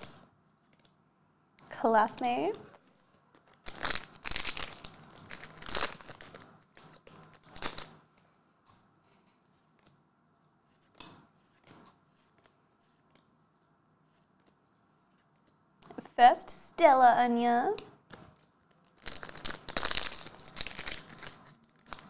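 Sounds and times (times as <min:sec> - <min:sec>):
foil packs crinkling and tearing: 0:03.4 - 0:08.0, 0:18.8 - 0:22.0.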